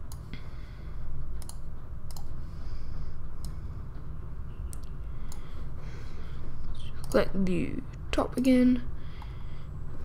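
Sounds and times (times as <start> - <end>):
low steady hum: 0.0 - 10.0
computer mouse and keyboard clicks: 1.4 - 2.4.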